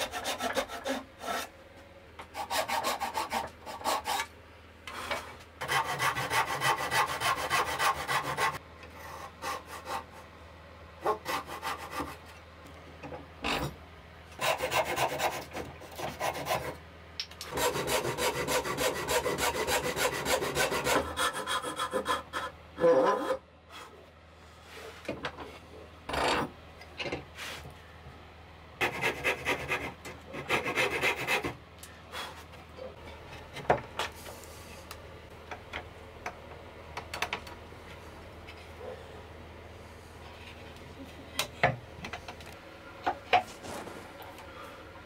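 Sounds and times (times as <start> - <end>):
handsaw cutting wood: 0.0 - 1.5, 2.3 - 4.3, 5.6 - 8.6, 11.0 - 12.2, 14.4 - 16.8, 17.5 - 23.4, 28.8 - 31.6.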